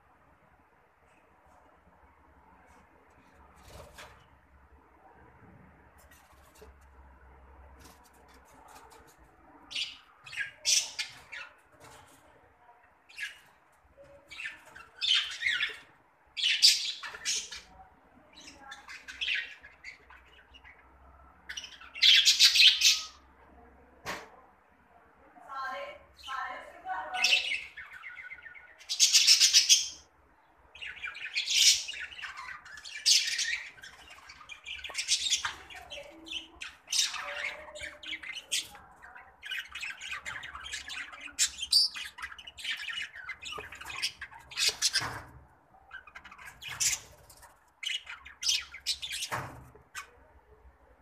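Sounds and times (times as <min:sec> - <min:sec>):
budgerigars chattering and squawking: 0:08.2 - 0:11.7, 0:14.3 - 0:17.7, 0:18.4 - 0:23.3, 0:27.2 - 0:30.1, 0:30.8 - 0:50.2.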